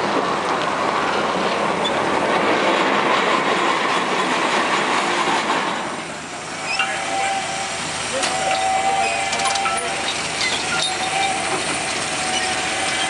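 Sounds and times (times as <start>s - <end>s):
steam dragline engines running: 0.0s - 13.0s
steam hiss: 2.9s - 13.0s.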